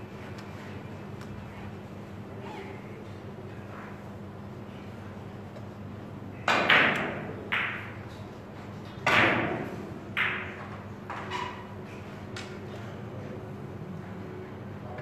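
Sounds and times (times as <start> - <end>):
steady low hum: 0.0 - 11.1
billiard balls clacking: 6.5 - 8.3, 9.0 - 11.3.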